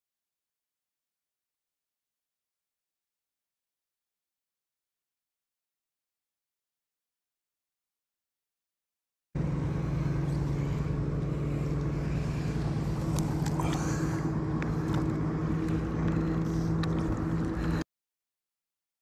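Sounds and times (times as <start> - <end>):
boat motor humming: 9.4 - 17.9.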